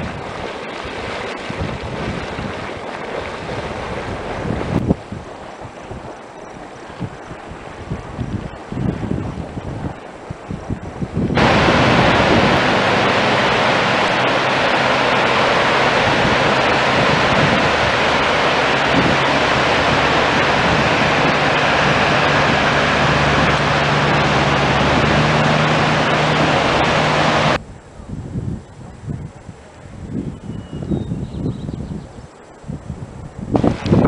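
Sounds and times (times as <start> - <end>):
river rapids rushing over boulders: 11.4 - 27.6.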